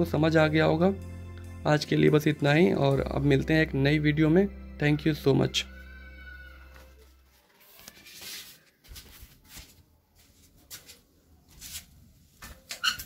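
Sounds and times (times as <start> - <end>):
soft rustling: 6.7 - 12.6.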